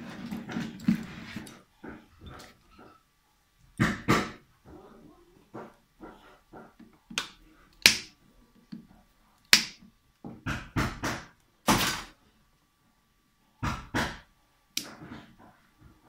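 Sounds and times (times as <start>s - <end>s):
pliers snapping through wires: 7.2s - 8.1s.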